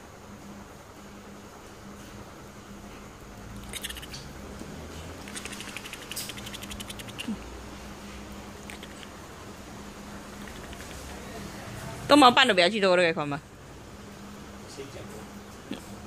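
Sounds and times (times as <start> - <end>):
faint low hum: 0.0 - 16.0
claws scratching on fabric: 5.2 - 7.3.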